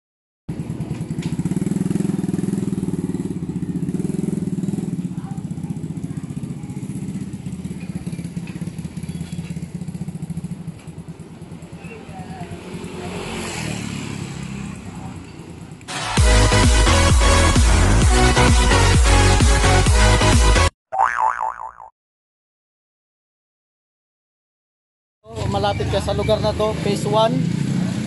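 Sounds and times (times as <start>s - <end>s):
motorcycle engine idling: 0.5s - 13.1s.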